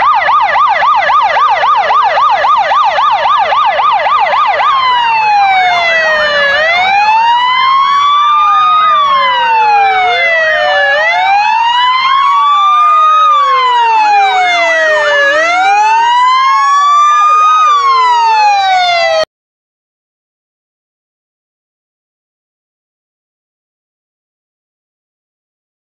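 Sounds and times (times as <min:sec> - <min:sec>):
fire engine sirens wailing: 0:00.0 - 0:19.3
siren fast yelp: 0:00.0 - 0:19.3.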